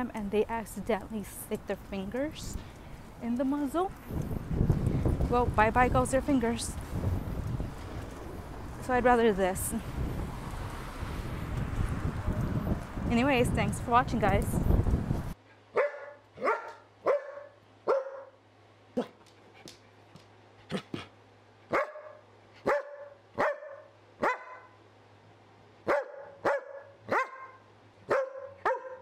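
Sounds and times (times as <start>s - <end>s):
dog barking: 15.7s - 18.4s, 21.7s - 24.8s, 25.8s - 29.0s.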